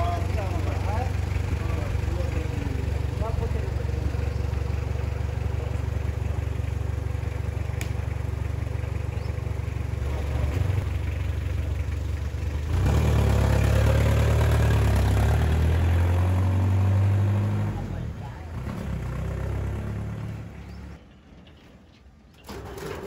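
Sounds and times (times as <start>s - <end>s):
pickup truck engine idling: 0.0s - 12.9s.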